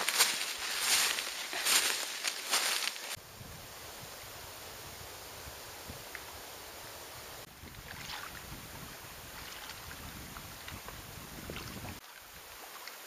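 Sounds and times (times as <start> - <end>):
wind on microphone: 3.2 - 12.0.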